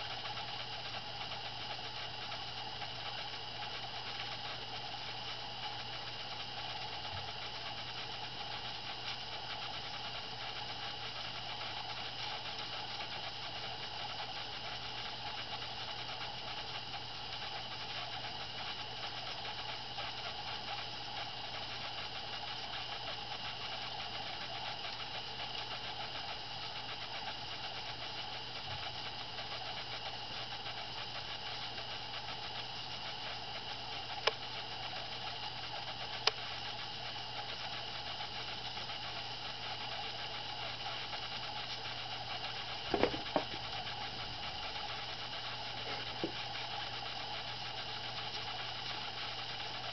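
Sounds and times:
mechanical hum with hiss: 0.0 - 49.9
brief knock: 42.9 - 43.6.

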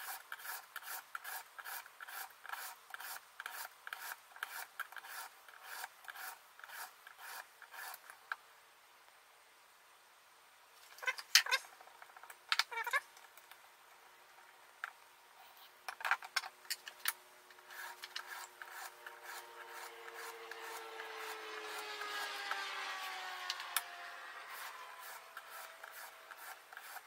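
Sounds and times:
stone rasping on knife edge: 0.0 - 8.0, 17.7 - 20.8.

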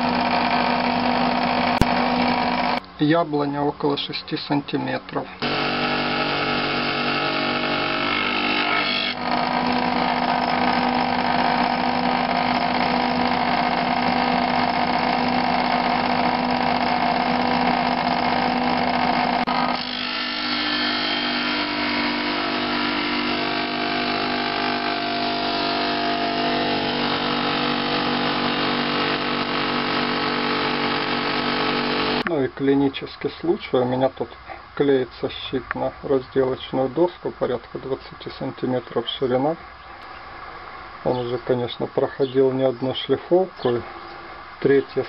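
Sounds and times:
sander motor humming: 0.0 - 2.8, 5.4 - 32.3.

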